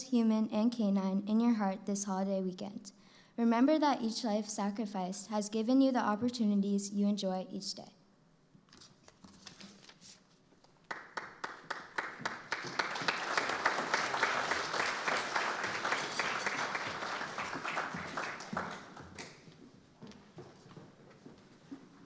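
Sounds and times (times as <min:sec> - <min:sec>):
audience applauding: 0:10.9 - 0:19.5.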